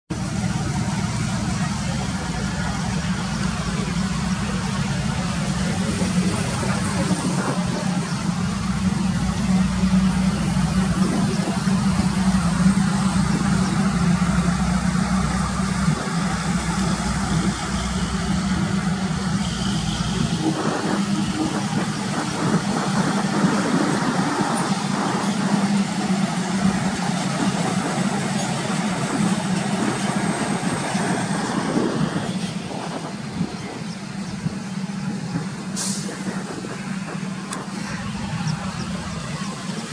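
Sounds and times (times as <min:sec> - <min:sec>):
deep rumble: 0:00.1 - 0:39.9
lorries driving past: 0:00.1 - 0:39.9.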